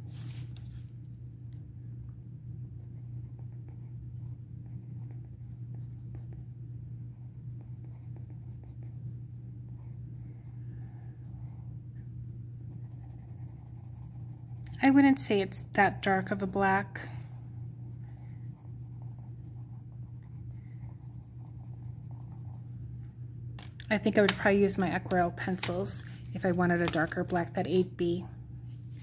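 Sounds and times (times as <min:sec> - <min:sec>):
low hum: 0:00.0 - 0:29.0
pencil scratching on paper: 0:02.8 - 0:06.5, 0:07.1 - 0:11.7, 0:12.7 - 0:15.2, 0:16.0 - 0:22.6.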